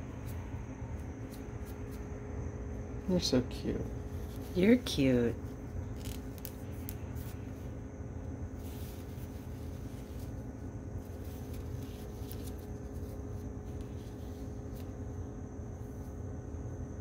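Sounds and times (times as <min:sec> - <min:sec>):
paper towel rustling: 0:08.5 - 0:15.0.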